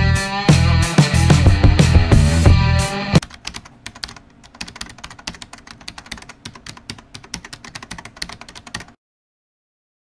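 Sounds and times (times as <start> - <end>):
keyboard typing: 3.2 - 9.0.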